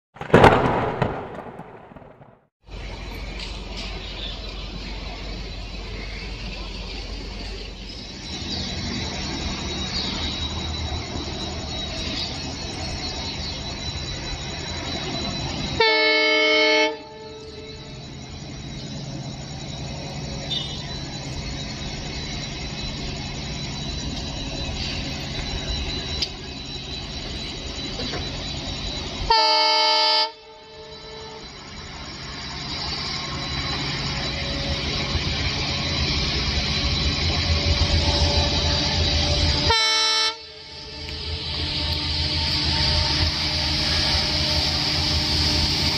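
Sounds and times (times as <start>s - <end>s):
diesel train rumbling: 0.2s - 45.9s
locomotive horn blasts: 15.7s - 17.7s, 29.2s - 31.6s, 39.5s - 45.6s.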